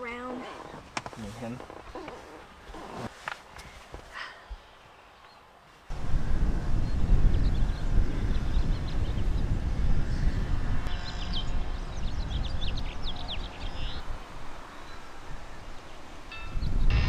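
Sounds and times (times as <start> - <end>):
birds chirping: 6.7 - 17.0.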